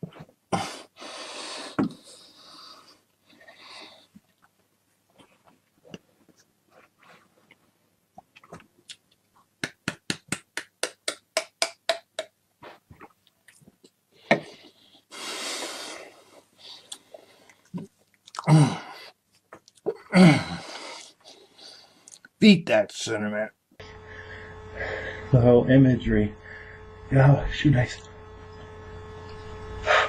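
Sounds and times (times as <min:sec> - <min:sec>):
man hacking: 0:09.6 - 0:12.4
breathy blow-out: 0:14.3 - 0:17.3, 0:23.8 - 0:25.4, 0:26.3 - 0:27.1, 0:29.2 - 0:30.0.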